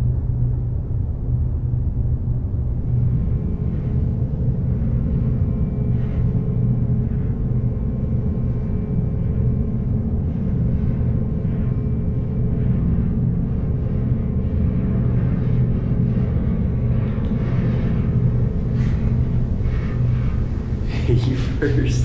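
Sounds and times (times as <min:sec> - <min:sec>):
constant hum: 0:00.0 - 0:22.0
low rumbling drone: 0:00.0 - 0:22.0.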